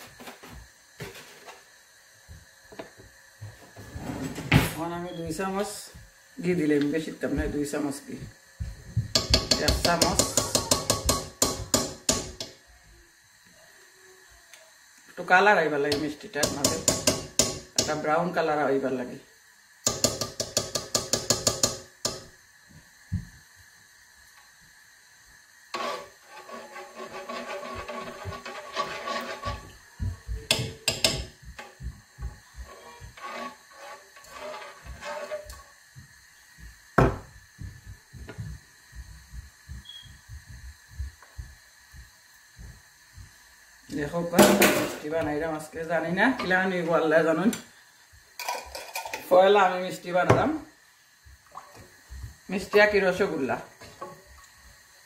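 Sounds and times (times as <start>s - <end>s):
metal spoon tapping a pot rim: 9.1s - 12.6s, 15.9s - 18.0s, 19.8s - 22.3s, 30.5s - 31.3s
metal spoon scraping a pot: 25.7s - 29.8s, 32.6s - 35.7s.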